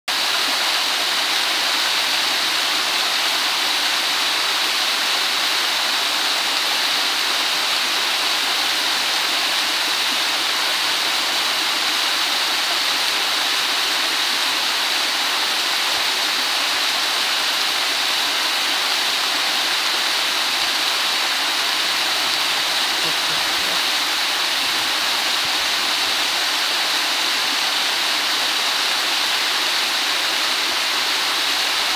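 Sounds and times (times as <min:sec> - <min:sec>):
waterfall rushing: 0:00.1 - 0:31.9.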